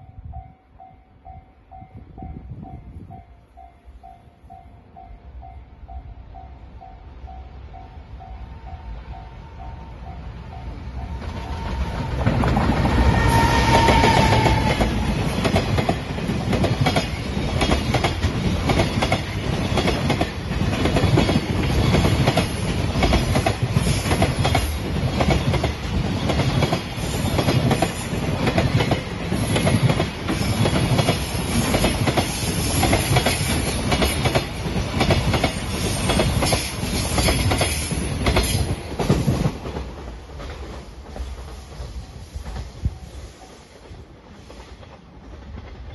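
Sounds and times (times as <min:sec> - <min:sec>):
train wheels clicking over rail joints: 0:11.2 - 0:42.8.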